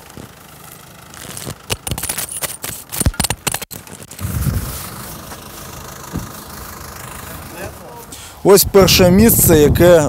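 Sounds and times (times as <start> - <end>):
barrier pole clicks and scrapes: 1.2 - 4.2.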